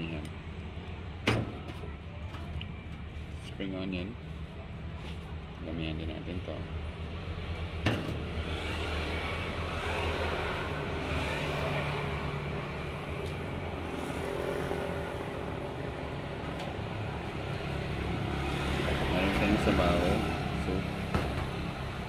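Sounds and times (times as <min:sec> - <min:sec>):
road traffic passing: 0:00.0 - 0:22.0.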